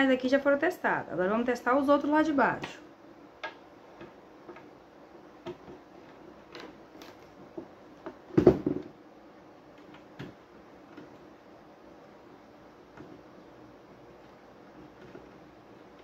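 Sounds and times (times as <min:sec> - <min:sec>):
clatter of knocks: 0:08.0 - 0:08.9.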